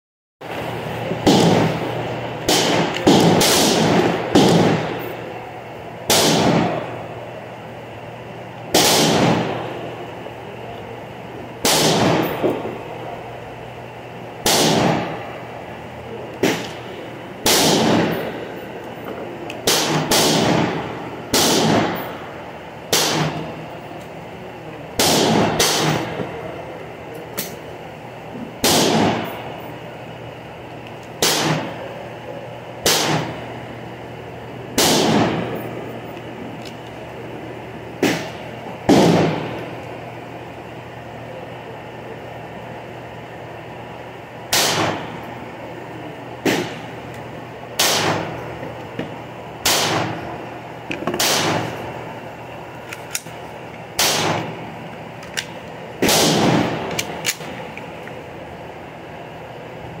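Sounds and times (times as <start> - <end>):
gunshots with ringing echo: 1.2 - 5.2, 6.1 - 7.0, 8.7 - 9.9, 11.6 - 12.7, 14.4 - 15.2, 16.4 - 18.6, 19.6 - 22.2, 22.9 - 23.7, 25.0 - 26.2, 28.6 - 29.5, 31.2 - 31.8, 32.8 - 33.4, 34.8 - 35.8, 38.0 - 39.6, 44.5 - 45.2, 46.4 - 46.9, 47.8 - 48.4, 49.6 - 50.4, 51.2 - 51.8, 54.0 - 54.6, 56.0 - 57.6.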